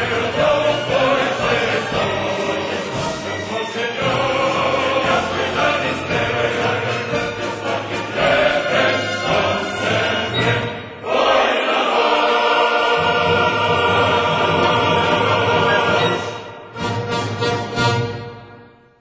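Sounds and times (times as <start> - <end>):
choir singing with orchestra: 0.0 - 19.0.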